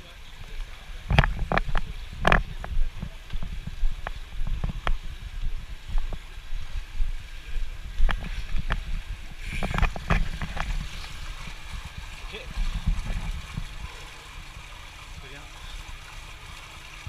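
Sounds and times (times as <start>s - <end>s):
pool water lapping: 0.0s - 17.0s
swimmer splashing: 5.3s - 17.0s.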